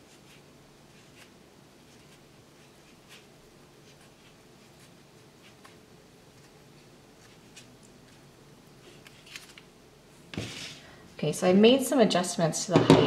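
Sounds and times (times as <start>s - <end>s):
tape rubbing and crinkling: 0.0s - 9.7s
low room hum: 0.0s - 13.0s.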